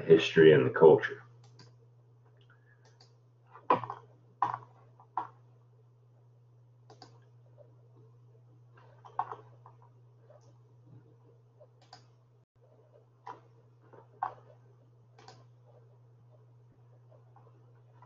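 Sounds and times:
faint low hum: 0.0s - 18.0s
computer mouse clicks: 1.4s - 1.8s, 2.8s - 3.2s, 6.9s - 7.3s, 11.6s - 12.2s, 15.2s - 15.5s.

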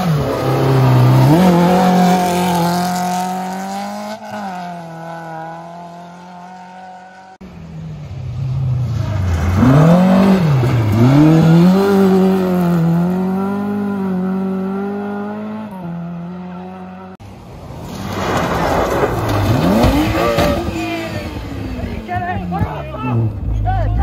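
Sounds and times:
rally car passing at speed: 0.0s - 23.5s.

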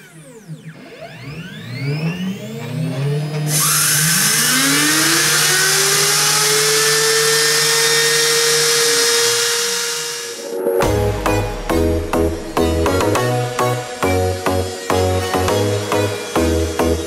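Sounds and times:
router spindle hiss and whine: 3.3s - 10.8s, 12.4s - 17.0s
electronic whooshing sweeps: 9.0s - 15.4s.

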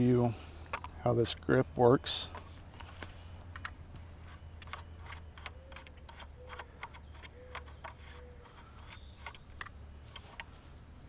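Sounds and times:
clamp and knobs clicking: 2.3s - 10.5s
faint short squeaks: 7.3s - 9.5s.

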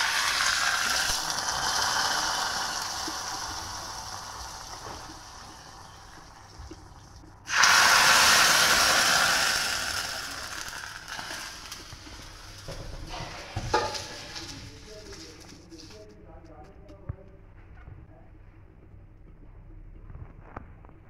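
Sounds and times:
hot oil sizzling: 0.0s - 6.9s, 7.5s - 15.5s.

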